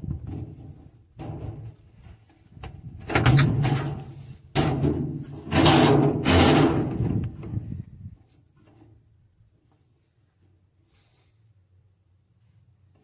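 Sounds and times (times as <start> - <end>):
plastic hose scraping and rustling: 0.0 - 9.0.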